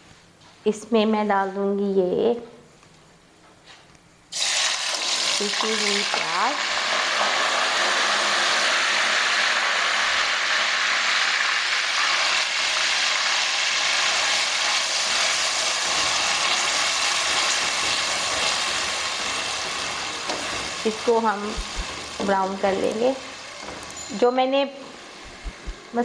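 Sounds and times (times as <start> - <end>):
onion paste sizzling in oil: 4.3 - 26.0.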